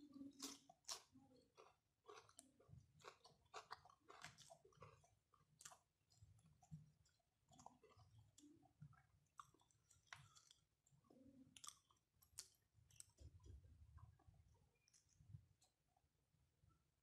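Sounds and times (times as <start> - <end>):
quiet chewing: 0.0 - 16.0.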